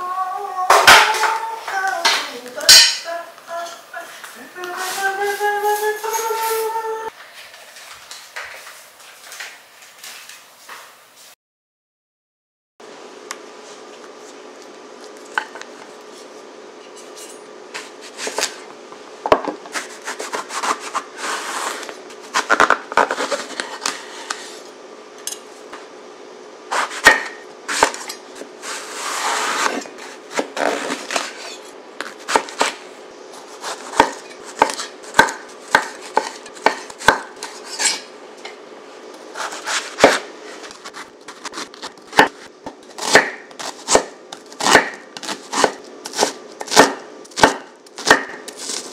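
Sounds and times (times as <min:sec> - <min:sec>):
scraping and handling: 0:19.4 - 0:25.5, 0:27.7 - 0:32.8, 0:39.2 - 0:42.6.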